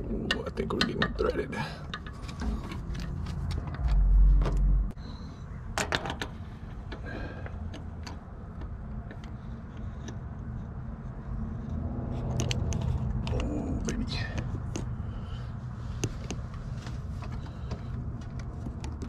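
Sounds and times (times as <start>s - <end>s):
hand tools tapping metal: 0.0s - 3.8s
oil lines tapping metal: 0.0s - 3.9s
steady low hum: 0.0s - 19.0s
heavy low rumble: 2.1s - 5.7s.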